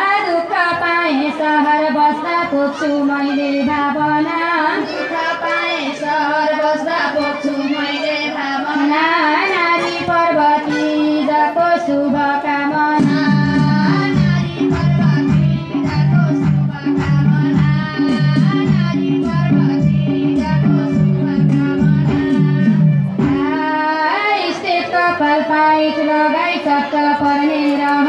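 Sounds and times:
instrumental accompaniment: 0.0 - 28.0
woman singing: 0.0 - 28.0
strong bass beat: 13.0 - 23.5.

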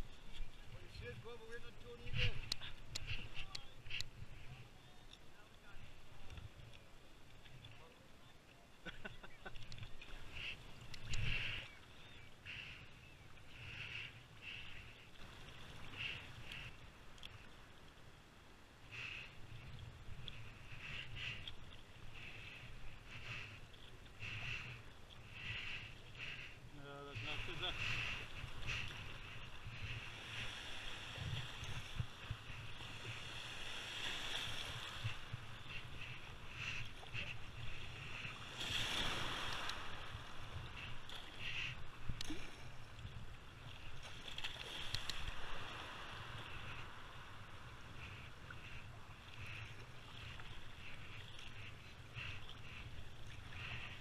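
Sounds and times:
wind buffeting microphone: 0.0 - 4.6
water rushing around kayak: 0.0 - 54.0
paddle splashing in water: 27.2 - 54.0.

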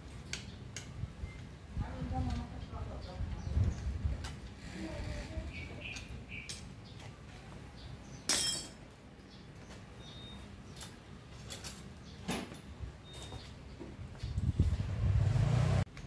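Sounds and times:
sharp metallic clink: 8.3 - 8.8.

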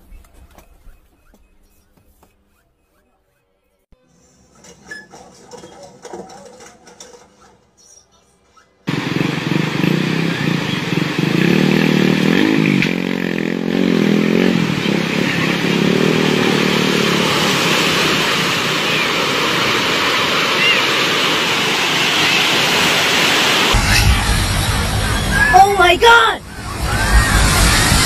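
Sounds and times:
floodwater rushing: 14.2 - 23.7
person's voice: 25.4 - 26.4.

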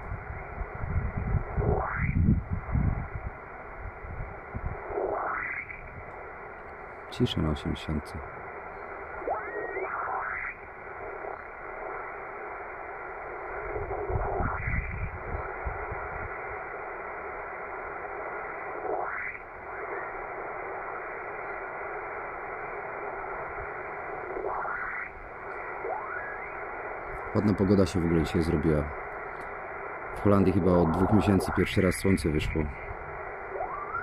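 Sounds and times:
shortwave radio hiss: 0.0 - 34.0
rising whistle: 33.5 - 34.0.

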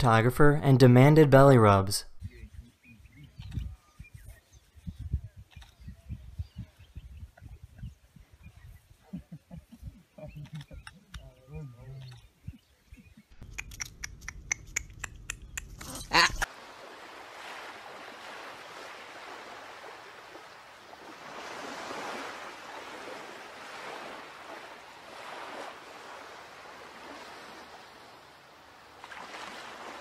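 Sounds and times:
quick sharp clicks: 13.4 - 16.1
surf washing on beach: 16.4 - 30.0.

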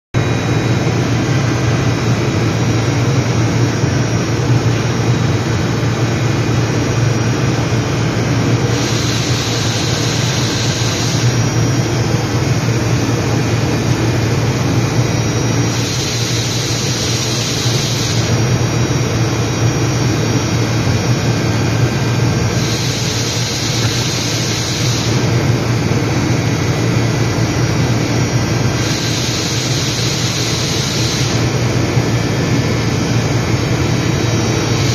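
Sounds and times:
machine low hum: 0.2 - 34.9
hiss: 8.6 - 11.6, 15.6 - 18.4, 22.5 - 25.4, 28.6 - 31.6.

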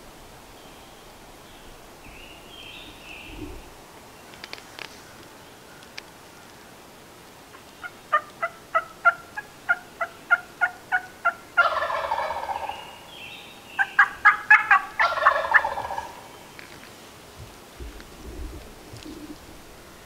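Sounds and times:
turkey call notes: 7.5 - 13.0, 13.8 - 16.7
turkey gobbling: 7.8 - 12.9, 13.8 - 16.3.

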